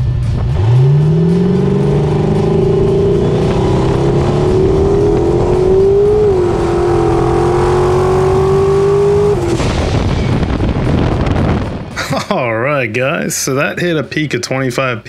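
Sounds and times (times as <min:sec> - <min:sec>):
drag car engine at full throttle: 0:00.0 - 0:11.9.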